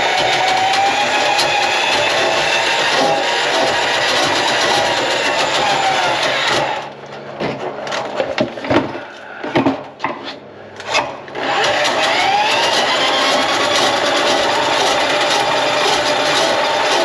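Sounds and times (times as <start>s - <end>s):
small motor running: 11.4s - 17.0s.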